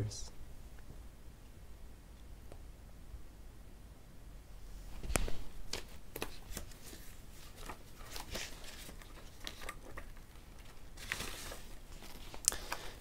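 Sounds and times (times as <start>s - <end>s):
cloth rustling on microphone: 4.8s - 13.0s.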